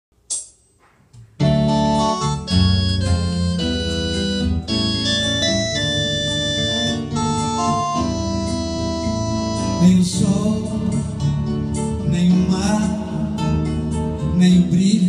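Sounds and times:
acoustic guitar strumming: 1.4 - 15.0
keyboard chords: 1.4 - 15.0
man singing: 9.6 - 15.0.

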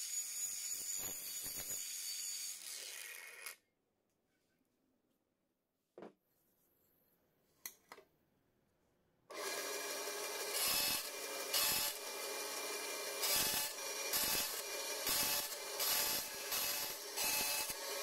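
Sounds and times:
bandsaw cutting metal: 0.0 - 3.6, 9.3 - 18.0.

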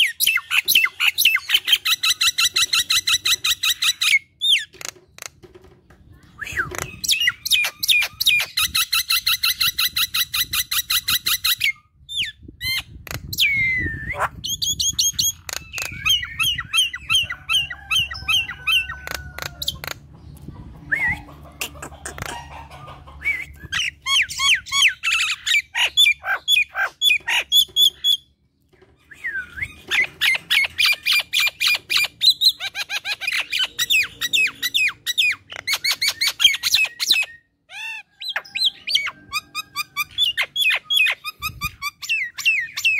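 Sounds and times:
myna chattering and whistling: 6.3 - 9.3, 13.3 - 28.2.

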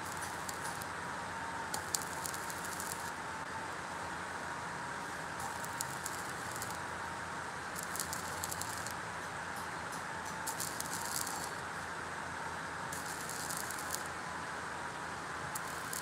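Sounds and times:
arc welding sizzling: 0.0 - 3.8, 4.9 - 16.0.

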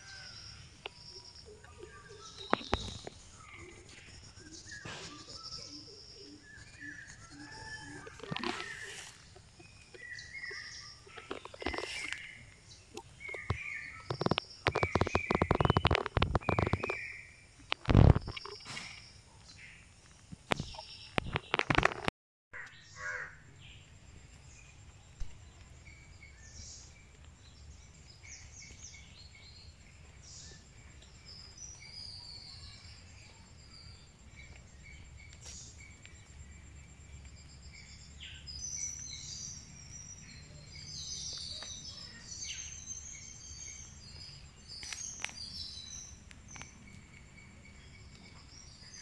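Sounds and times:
bird chirps and calls: 0.0 - 17.3.

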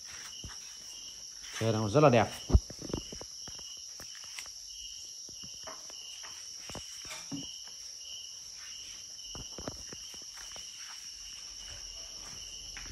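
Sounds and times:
crickets chirping: 0.0 - 12.9.

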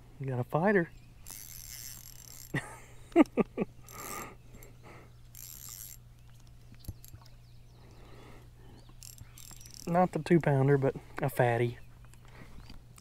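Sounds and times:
spinning reel being cranked: 1.2 - 2.6, 5.4 - 6.0, 9.0 - 9.9.

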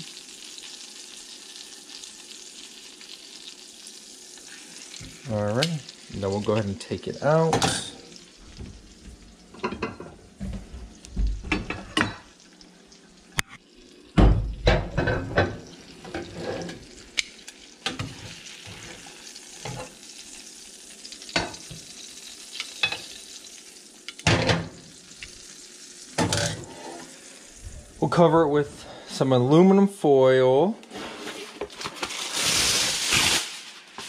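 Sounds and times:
butter sizzling in a pan: 0.0 - 28.1, 31.4 - 34.0.

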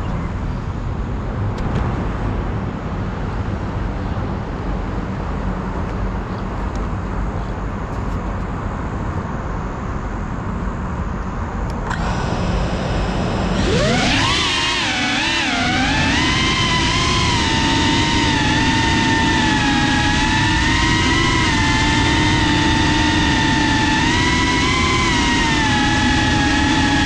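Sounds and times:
road traffic rumble: 0.0 - 27.0
drone motors whining: 11.6 - 27.0.

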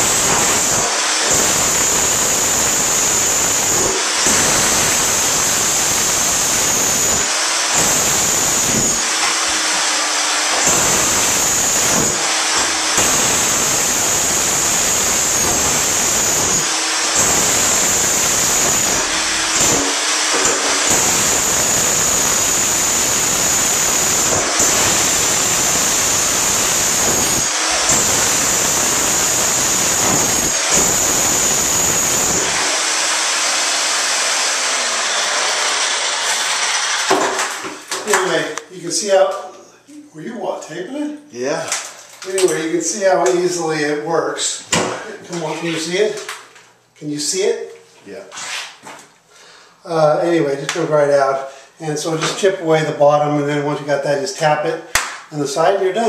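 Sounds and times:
electric breaker hammer on metal: 10.5 - 32.8.

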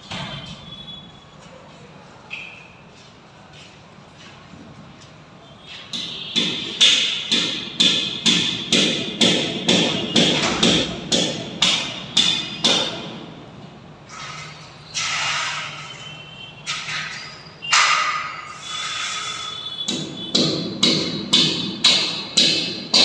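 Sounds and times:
hammer striking metal: 5.9 - 13.3, 16.6 - 23.0.

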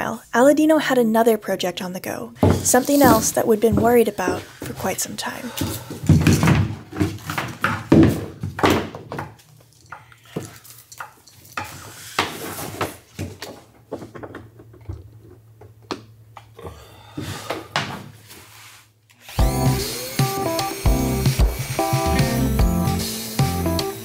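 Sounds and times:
music: 19.4 - 24.0.

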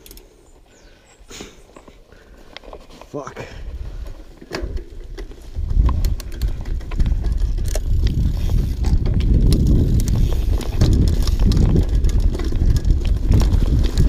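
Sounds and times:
bike clicks and rattles: 0.0 - 0.7, 1.6 - 14.0
wind buffeting microphone: 3.6 - 14.0
tyres rumbling on dirt: 4.4 - 14.0.

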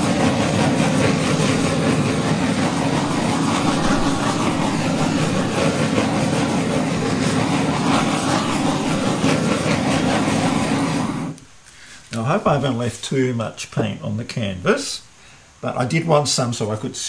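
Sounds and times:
gas torch flame hissing: 0.0 - 12.9.

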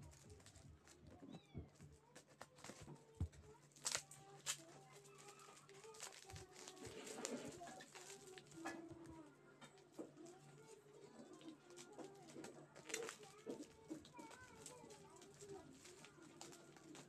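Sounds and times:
plastic packaging crinkling: 0.0 - 1.2, 2.1 - 9.1, 10.2 - 17.0.

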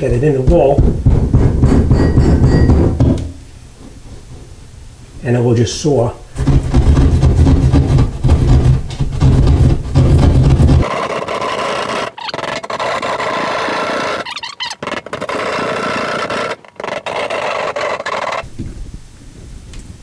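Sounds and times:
hand saw cutting drywall: 6.4 - 18.4.

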